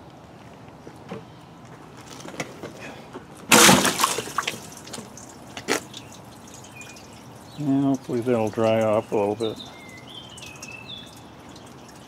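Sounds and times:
water splashing: 3.5 - 12.0.

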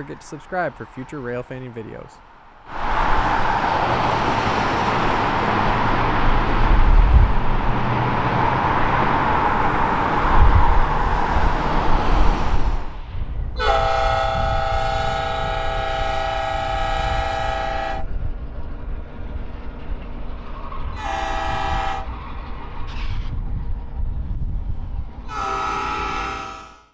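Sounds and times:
train rolling rumble: 0.0 - 26.8
diesel locomotive horn blasts: 13.6 - 18.2, 20.9 - 22.2, 25.2 - 26.9.

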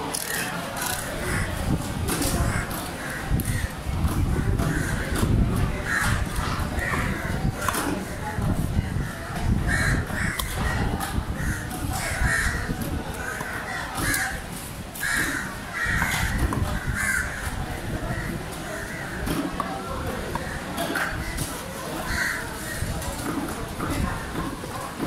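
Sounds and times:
crows cawing: 5.8 - 7.4, 9.6 - 14.4, 15.0 - 17.6, 20.4 - 22.9.

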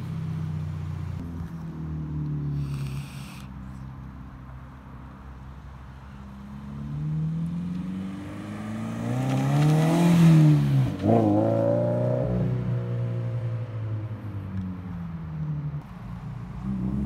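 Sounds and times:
car accelerating past: 6.3 - 14.3.

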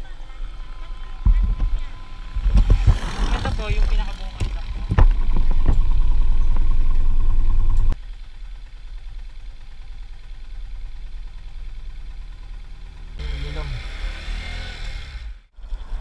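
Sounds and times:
motorcycle engine idling: 0.0 - 13.8
wind rumble on microphone: 1.1 - 8.0.

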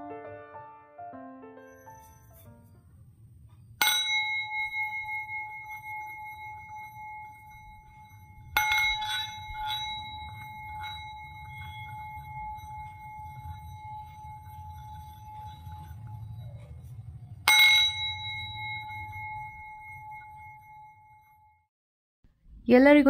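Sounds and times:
singing bowl struck with mallet: 3.8 - 21.4.

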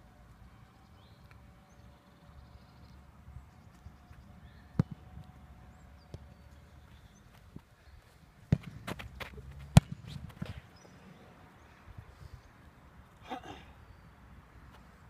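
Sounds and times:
football kick thud: 8.5 - 10.6.

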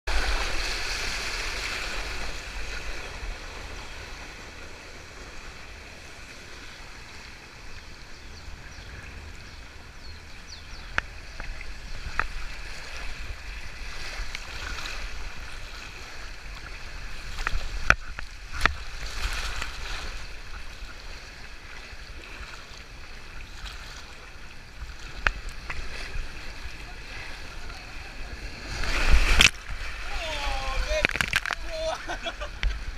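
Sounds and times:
water rushing and splashing: 0.1 - 32.9.

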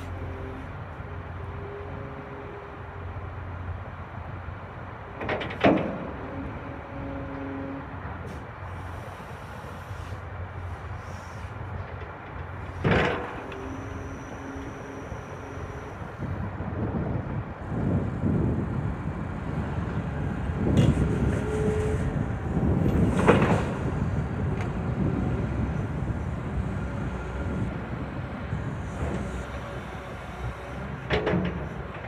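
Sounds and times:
hydraulic whine: 12.6 - 16.5.

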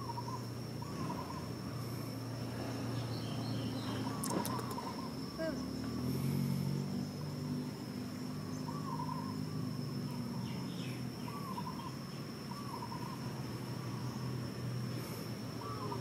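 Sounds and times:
short warbling calls: 3.8 - 5.7.

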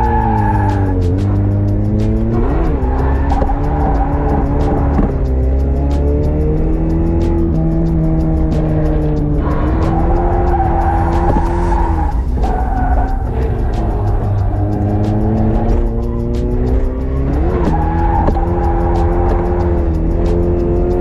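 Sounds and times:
car engine revving: 0.0 - 21.0
tyres squealing: 9.4 - 19.4.

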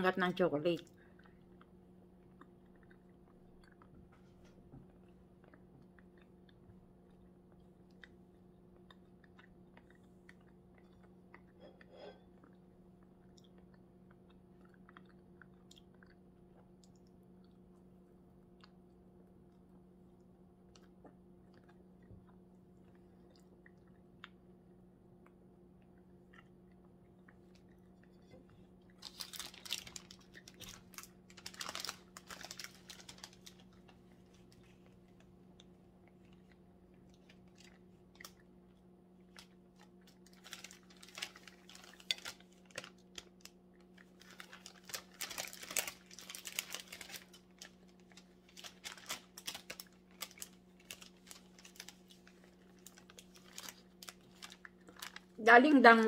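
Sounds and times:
steady low hum: 0.0 - 56.0
faint chewing: 0.7 - 55.4
cellophane wrapper crinkling: 28.9 - 36.4, 39.2 - 55.7.

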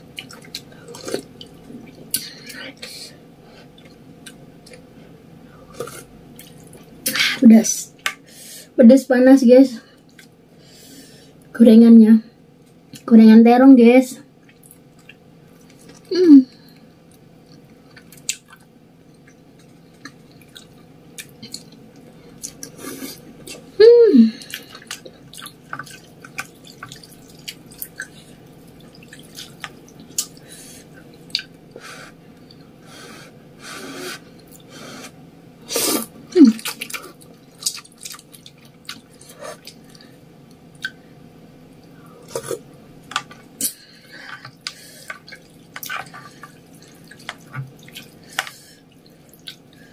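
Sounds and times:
wet chewing and mouth smacks: 24.5 - 30.4, 31.2 - 31.6, 36.6 - 41.0, 44.5 - 49.7.

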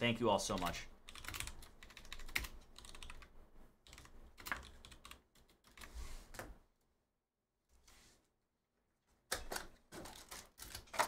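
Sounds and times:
typing on computer keyboard: 0.5 - 5.9.

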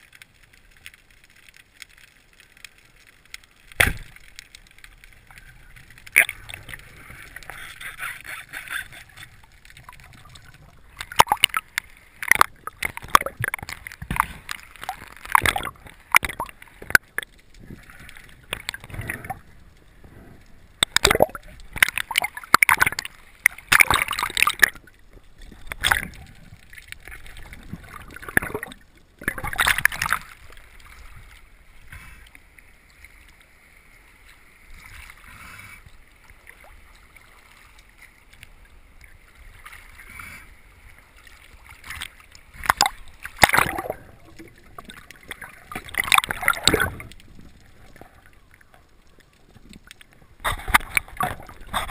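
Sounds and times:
underwater knocks clicks and scrapes: 0.0 - 33.4, 34.7 - 51.9
bubbles gurgling underwater: 9.8 - 30.6, 42.6 - 48.4.

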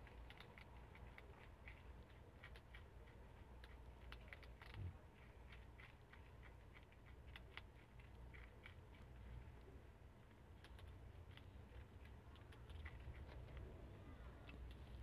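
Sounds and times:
animal gnawing crunchy treat: 0.0 - 15.0.

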